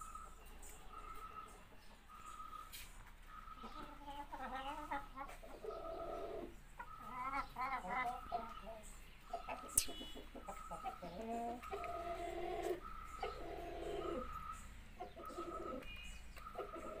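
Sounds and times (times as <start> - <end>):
chickens clucking: 0.0 - 17.0
sharp click: 9.8 - 10.0.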